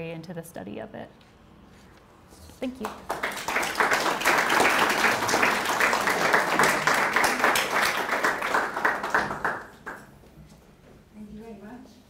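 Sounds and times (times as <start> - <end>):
audience applauding: 2.8 - 10.1.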